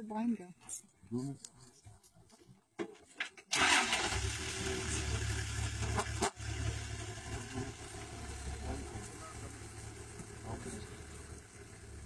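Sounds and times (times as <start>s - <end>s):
vehicle engine starting and idling: 3.5s - 12.0s.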